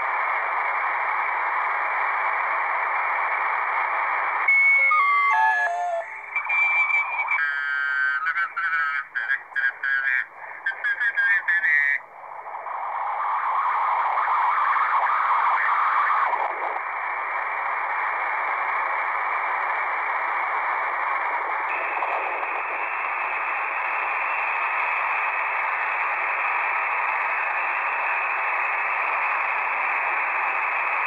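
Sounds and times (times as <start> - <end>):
radio static hiss: 0.0 - 31.0
warbling radio signal: 4.5 - 6.7.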